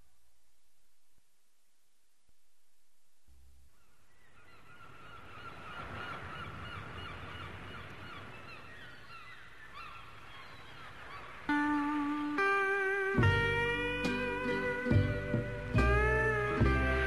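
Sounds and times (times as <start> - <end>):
flock of birds calling: 3.8 - 13.9.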